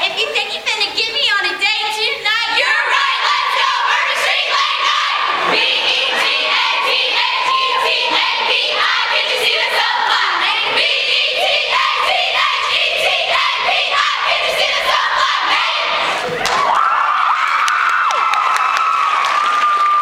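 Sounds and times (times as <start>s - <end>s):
women singing together: 2.3s - 16.3s.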